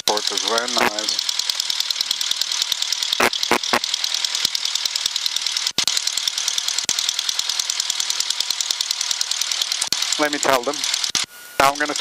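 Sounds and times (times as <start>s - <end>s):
piston engine idling: 0.0s - 12.0s.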